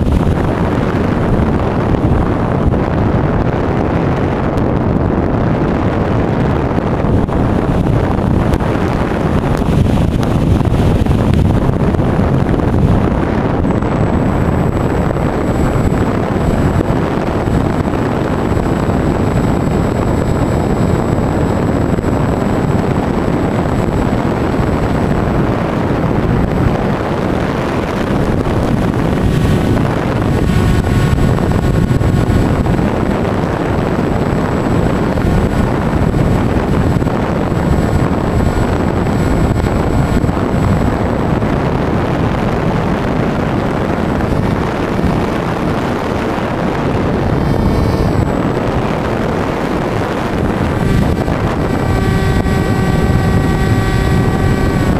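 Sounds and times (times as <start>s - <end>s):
electric motor and propeller drone: 0.0s - 54.9s
wind rushing over microphone: 0.0s - 54.9s
thin high whine: 5.2s - 54.9s.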